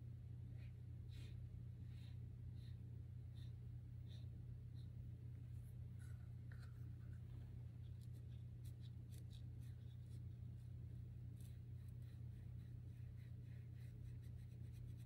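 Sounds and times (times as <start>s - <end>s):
steady low hum: 0.0s - 15.0s
colored pencil scratching on paper: 6.0s - 15.0s.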